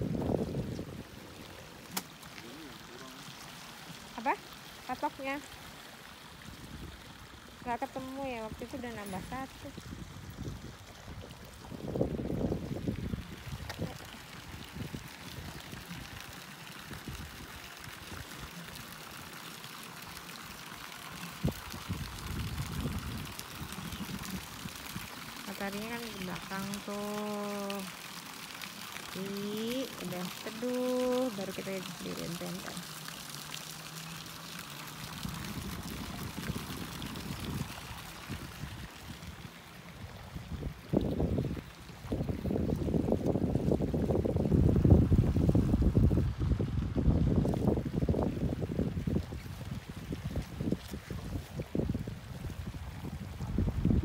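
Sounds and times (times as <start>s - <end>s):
wind rumble on microphone: 0.0s - 1.7s, 6.4s - 18.6s, 21.3s - 26.0s, 35.0s - 54.0s
fountain jet pouring into pool: 0.0s - 54.0s.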